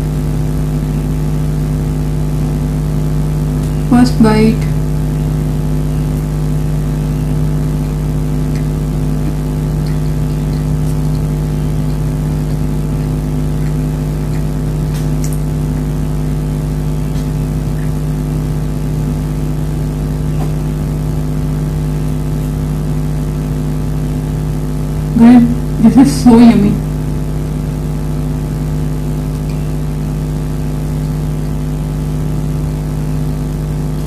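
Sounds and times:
motor hum: 0:00.0 - 0:34.0
soft chewing clicks: 0:08.5 - 0:15.9.

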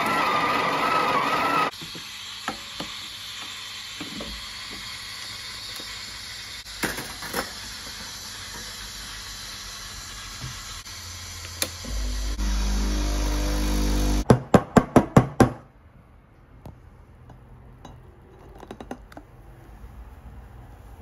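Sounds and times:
steam wand hissing: 0:00.0 - 0:14.2
espresso pump humming: 0:07.6 - 0:14.2.

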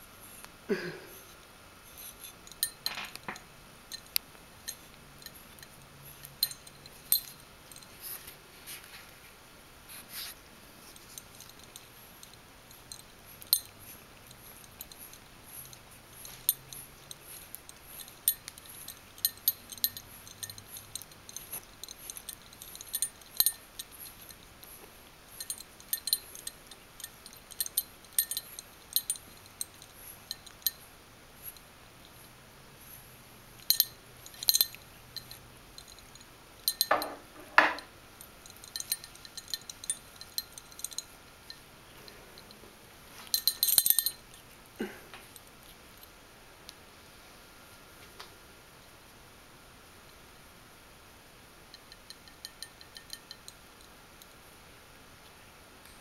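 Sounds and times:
metal collar tag clinking: 0:02.0 - 0:08.2, 0:10.8 - 0:32.2, 0:33.6 - 0:42.6, 0:43.2 - 0:46.1, 0:51.7 - 0:54.3.

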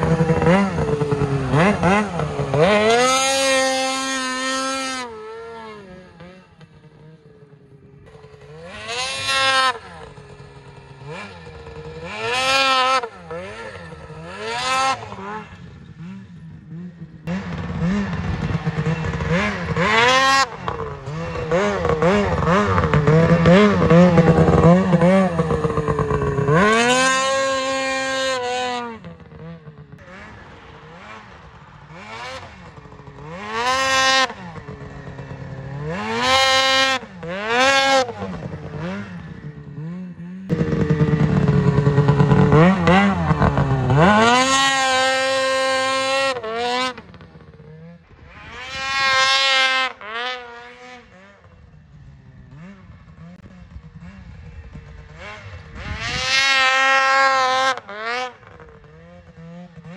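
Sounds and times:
snowmobile engine revving: 0:00.0 - 0:59.9.

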